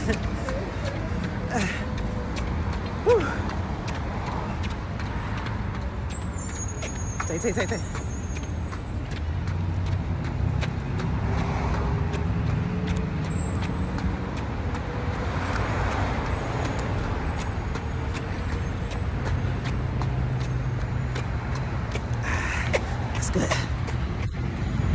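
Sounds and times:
road traffic rumble: 0:00.0 - 0:24.9.

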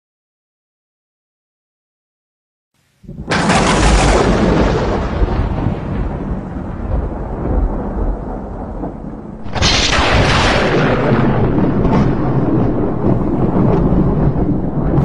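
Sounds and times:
sharp thunder crack: 0:03.0 - 0:15.0
thunder rumbling: 0:03.0 - 0:15.0.

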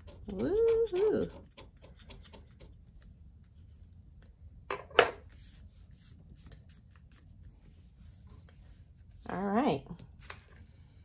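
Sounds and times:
metal pick scratching paper: 0:00.0 - 0:02.8.

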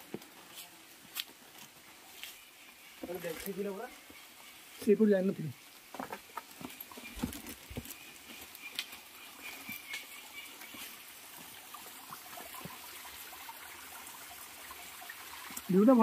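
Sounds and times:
faint steady hiss: 0:00.0 - 0:16.0
footsteps on rocky ground: 0:05.8 - 0:11.5.

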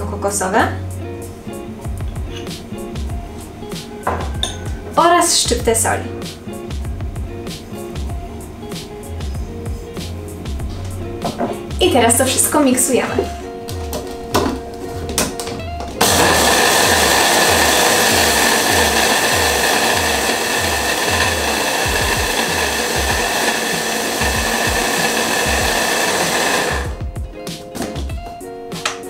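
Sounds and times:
background music with steady beat: 0:00.0 - 0:29.0
electric hand blender whining: 0:15.9 - 0:27.0.

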